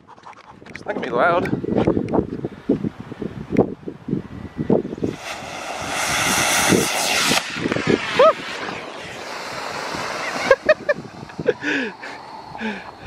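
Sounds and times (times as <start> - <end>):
rocket motor hissing: 5.0 - 13.0.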